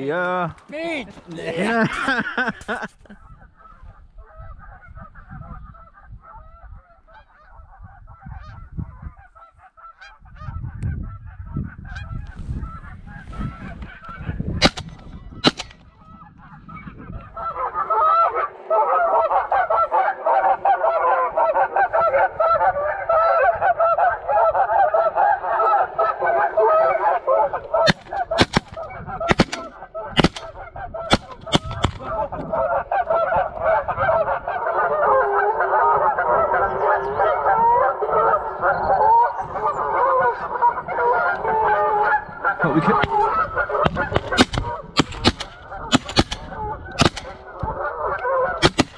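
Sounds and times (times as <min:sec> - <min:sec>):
geese honking: 0:03.3 - 0:48.9
shotgun shots: 0:14.6 - 0:15.9, 0:27.9 - 0:32.1, 0:43.0 - 0:47.4, 0:48.6 - 0:48.9.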